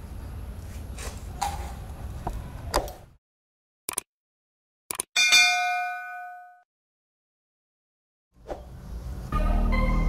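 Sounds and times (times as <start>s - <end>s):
bell ding: 5.2s - 6.7s.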